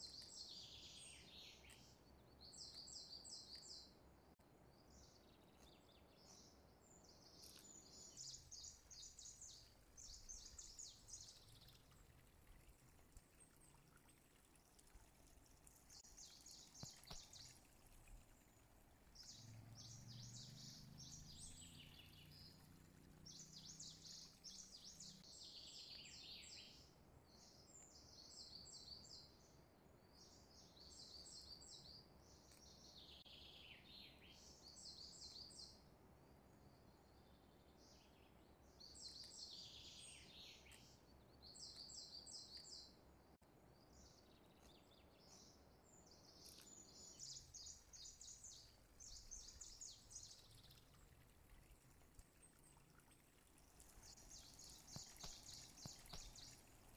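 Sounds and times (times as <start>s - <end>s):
low steady hiss: 0.0s - 56.9s
birds chirping: 15.2s - 26.8s, 43.7s - 56.9s.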